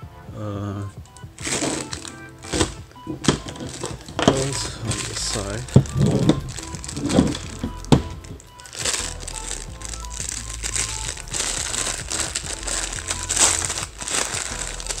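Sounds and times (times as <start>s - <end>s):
background music: 0.0s - 15.0s
plastic packaging crinkling: 1.2s - 15.0s.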